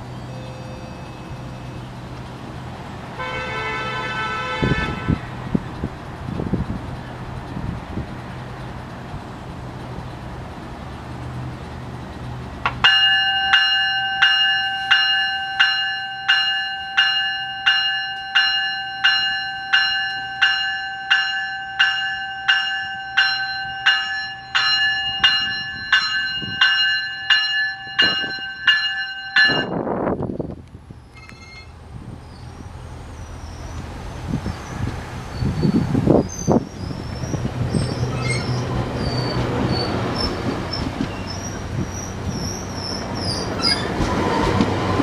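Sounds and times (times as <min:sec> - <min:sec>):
train low hum: 0:00.0 - 0:45.0
train warning bell ringing: 0:12.8 - 0:30.1, 0:31.1 - 0:31.8, 0:37.7 - 0:40.2.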